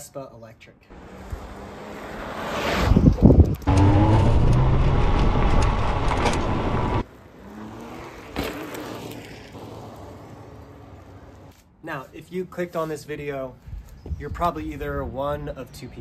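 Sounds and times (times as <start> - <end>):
tyre and wind rush: 2.2 - 7.0.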